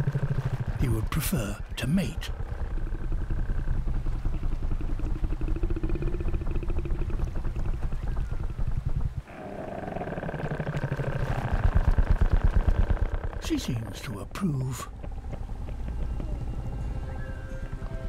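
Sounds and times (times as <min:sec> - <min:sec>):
deep pulsing creature rumble: 0:00.0 - 0:18.0.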